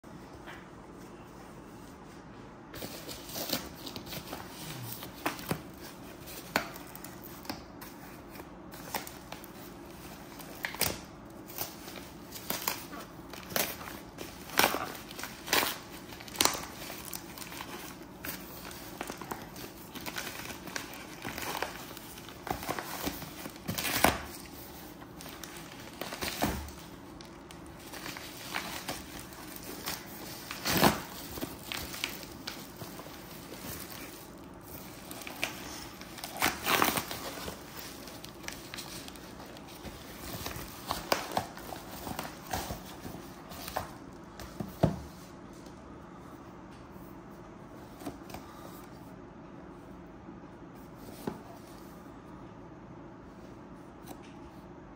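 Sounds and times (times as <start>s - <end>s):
plastic mailer crinkling and tearing: 2.8s - 44.2s.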